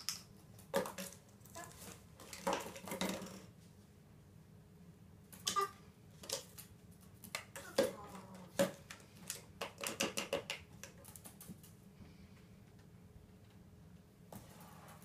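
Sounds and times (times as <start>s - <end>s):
beak tapping plastic bottles: 7.3s - 11.3s.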